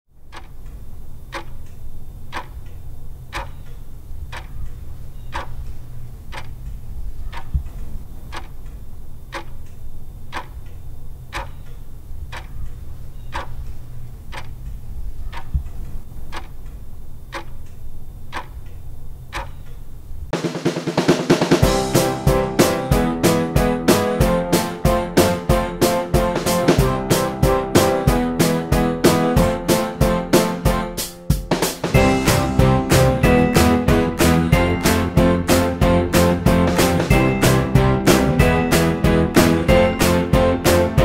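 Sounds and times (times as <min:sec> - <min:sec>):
clock ticking: 0:00.1 - 0:19.9.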